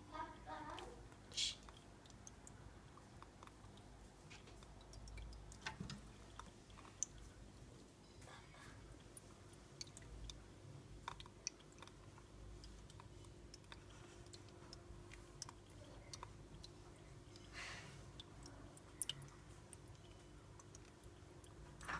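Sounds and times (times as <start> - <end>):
chameleon chewing: 0.1 - 21.9.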